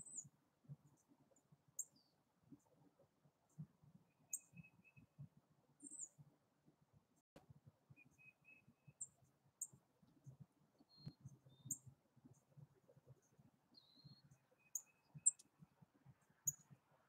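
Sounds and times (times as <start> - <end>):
thin whistled bird notes: 0.0 - 0.4, 1.8 - 2.2, 4.1 - 5.1, 5.8 - 6.2, 8.0 - 9.8, 10.8 - 11.9, 13.7 - 15.5, 16.4 - 16.8
songbird chip calls: 4.1 - 5.1, 8.0 - 9.8, 13.8 - 15.5.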